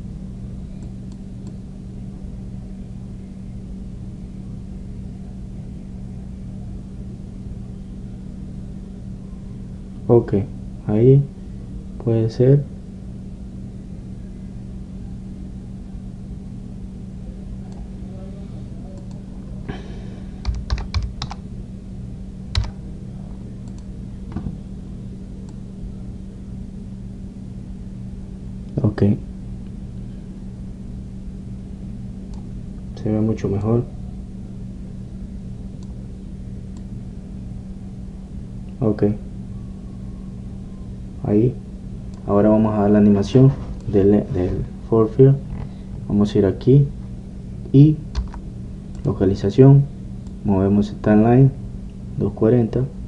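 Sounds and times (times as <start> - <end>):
low hum with hiss: 0.0 - 53.0
computer keyboard keystrokes: 20.4 - 21.4, 22.5 - 22.8, 48.1 - 48.4.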